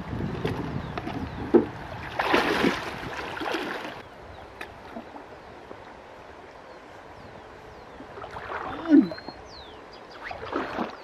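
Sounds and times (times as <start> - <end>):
flowing water: 0.0 - 11.0
river water splashing: 0.5 - 6.6, 7.9 - 11.0.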